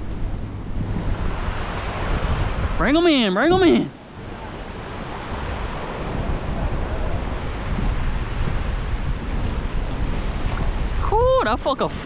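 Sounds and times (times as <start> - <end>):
surf washing against rocks: 0.0 - 12.0
wind rumbling on microphone: 0.0 - 12.0.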